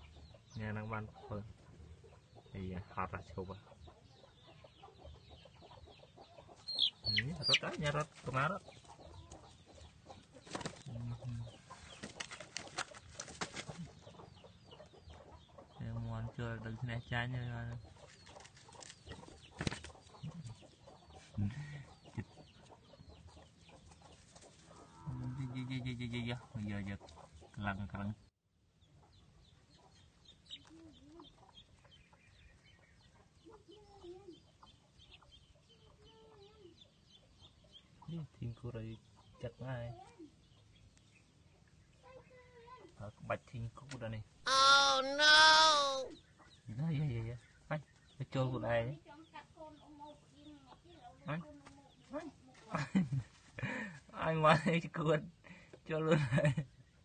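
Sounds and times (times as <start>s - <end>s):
chicks clucking: 0.0s - 25.0s, 25.7s - 27.8s, 28.8s - 39.8s, 44.5s - 46.7s
chickens scuffling on straw: 7.3s - 9.4s
chicken low call: 44.5s - 46.2s.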